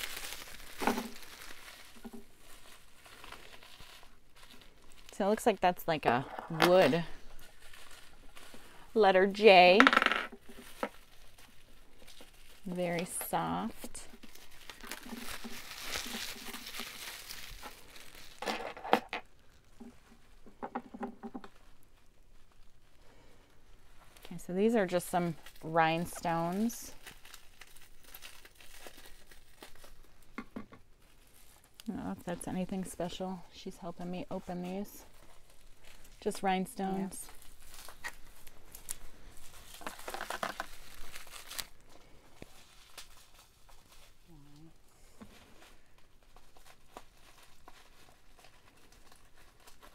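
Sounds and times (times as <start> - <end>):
packing wrap crinkling: 0.0 - 49.9.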